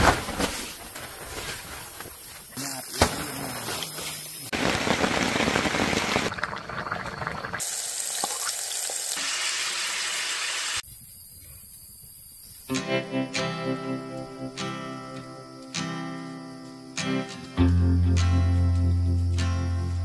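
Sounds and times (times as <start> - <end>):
campfire burning: 4.5 - 9.2
pot boiling and bubbling: 4.6 - 9.7.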